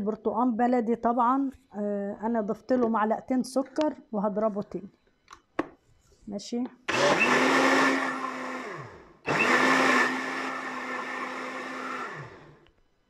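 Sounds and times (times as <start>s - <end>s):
blender motor running: 6.9s - 12.6s.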